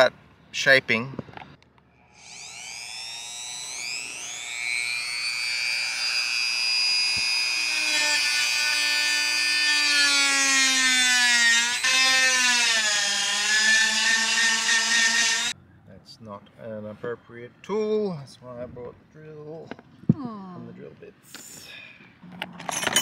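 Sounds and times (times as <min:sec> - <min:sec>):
rotary tool whining: 0:01.9 - 0:15.6.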